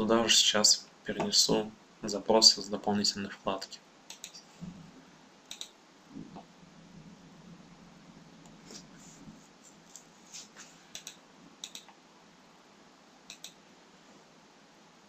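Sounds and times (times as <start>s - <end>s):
computer mouse clicking: 4.1s - 4.4s, 5.5s - 5.8s, 10.9s - 12.0s, 13.3s - 13.6s.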